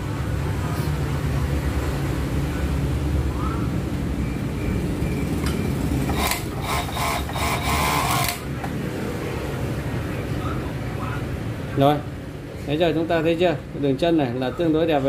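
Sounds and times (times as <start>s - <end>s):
overlock machine humming: 4.2s - 8.6s.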